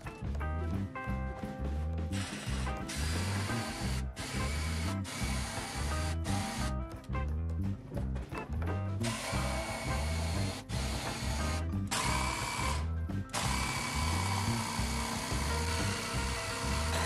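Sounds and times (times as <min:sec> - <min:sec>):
background music: 0:00.0 - 0:17.0
jigsaw sawing through wood: 0:02.2 - 0:06.7, 0:09.0 - 0:17.0.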